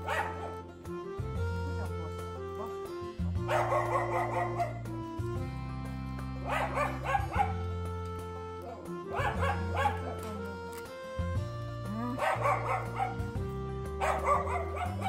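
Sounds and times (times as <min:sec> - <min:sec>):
background music with held notes: 0:00.0 - 0:15.0
young dog whining yips: 0:06.5 - 0:07.6, 0:14.0 - 0:15.0.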